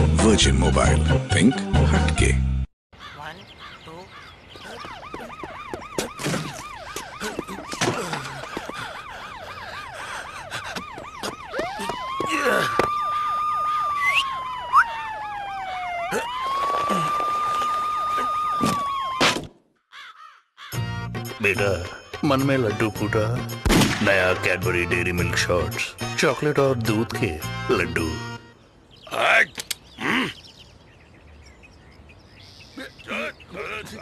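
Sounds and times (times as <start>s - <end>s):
siren wailing: 4.6s - 19.4s.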